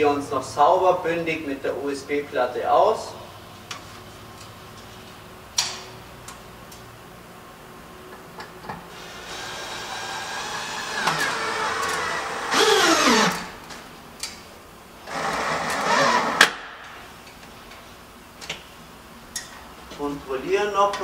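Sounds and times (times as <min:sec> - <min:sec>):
drill-driver driving screws: 0:08.9 - 0:13.6, 0:15.1 - 0:16.6
sharp drill click: 0:09.2 - 0:13.6.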